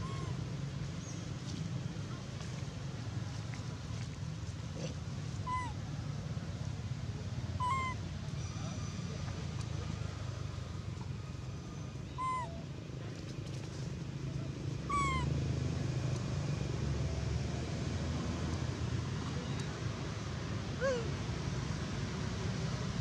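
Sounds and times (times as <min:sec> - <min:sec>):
monkey coo calls: 0:00.0 - 0:00.4, 0:05.4 - 0:05.8, 0:07.6 - 0:08.0, 0:12.2 - 0:12.6, 0:14.9 - 0:15.3, 0:20.8 - 0:21.1
low background rumble: 0:00.0 - 0:23.0.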